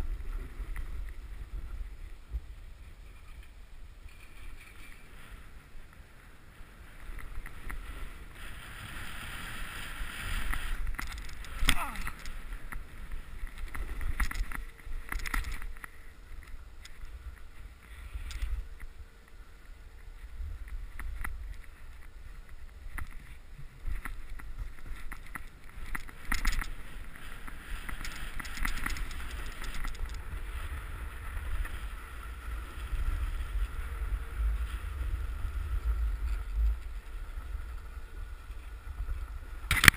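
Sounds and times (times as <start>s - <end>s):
wind rumbling on microphone: 0.0s - 39.9s
snowboard scraping on snow: 4.2s - 10.9s.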